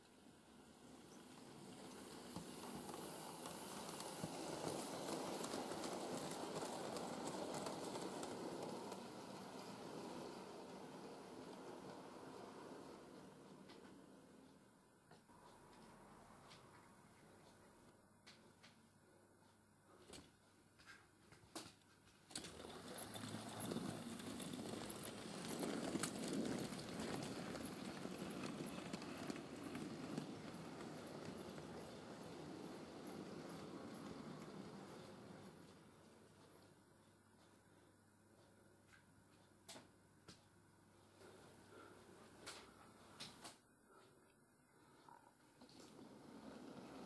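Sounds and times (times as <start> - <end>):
model train rolling rumble: 0.4 - 14.4, 22.3 - 36.6, 45.6 - 47.0
wheels clicking over rail joints: 1.0 - 14.0, 22.3 - 36.1.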